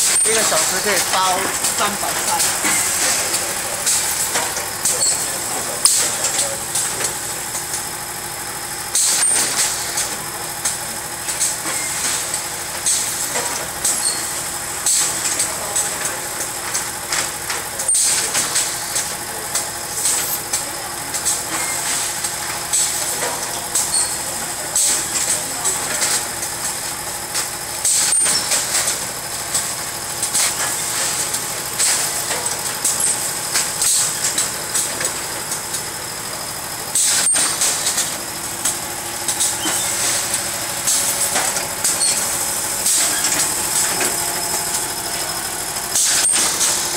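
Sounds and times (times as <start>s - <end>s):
machine mechanical hum: 0.0s - 46.9s.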